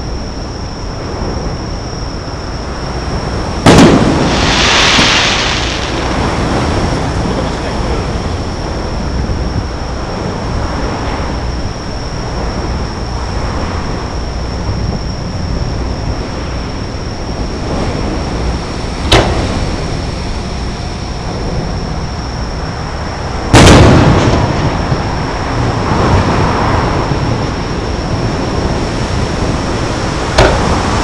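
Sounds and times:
steady background rumble: 0.0s - 31.0s
fireworks bursts booming: 3.6s - 9.3s, 17.6s - 22.1s, 23.5s - 26.4s.

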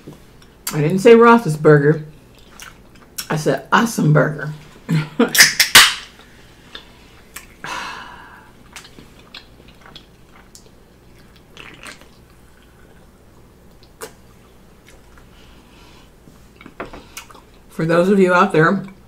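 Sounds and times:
person chewing: 2.1s - 3.3s, 5.4s - 7.6s, 8.2s - 17.7s.

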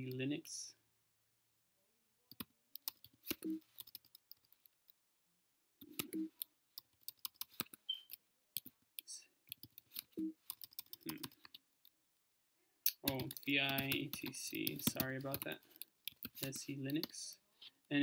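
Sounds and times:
computer keyboard typing: 2.3s - 4.7s, 5.8s - 8.7s, 9.5s - 11.7s, 12.9s - 17.3s.

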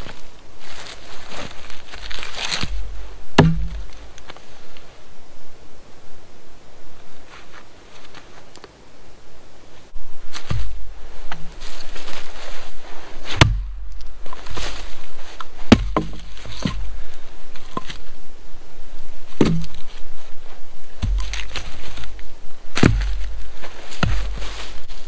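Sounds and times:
axe splitting wood: 3.4s - 3.9s, 13.3s - 13.7s, 15.7s - 16.8s, 19.4s - 19.9s, 21.0s - 21.7s, 22.8s - 23.3s.

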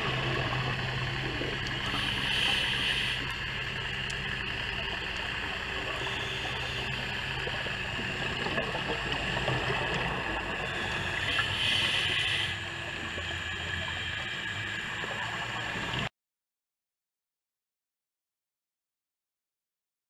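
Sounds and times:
regulator bubbles rushing: 0.0s - 16.1s
underwater hiss with crackle: 0.0s - 16.1s.

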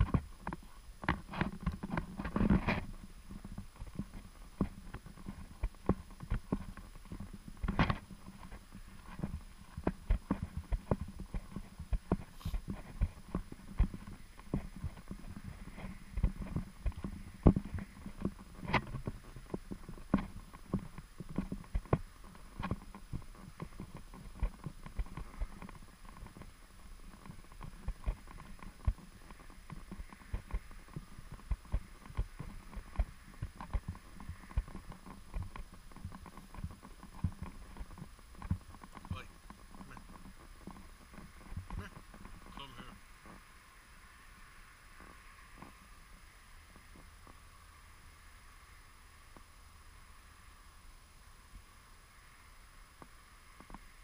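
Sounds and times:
footsteps on thin snow: 0.1s - 22.2s.

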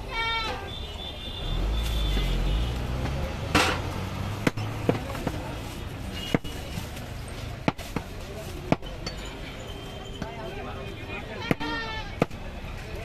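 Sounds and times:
cleaver chopping on wooden block: 3.6s - 5.4s.

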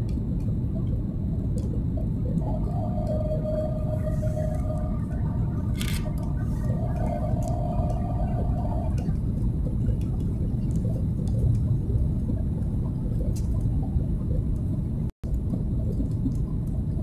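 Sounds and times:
aircraft engines rumbling: 0.0s - 17.0s
held tone: 2.4s - 9.1s.

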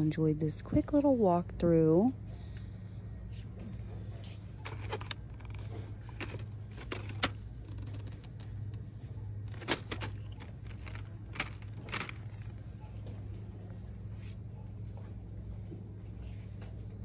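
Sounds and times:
steady low hum: 0.0s - 17.0s
blister pack clicking and crinkling: 4.6s - 8.8s, 9.5s - 12.6s.

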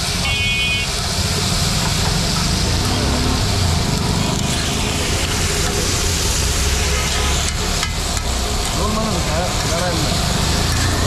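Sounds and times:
food sizzling on griddle: 0.0s - 11.0s
street traffic rumble: 0.0s - 11.0s.

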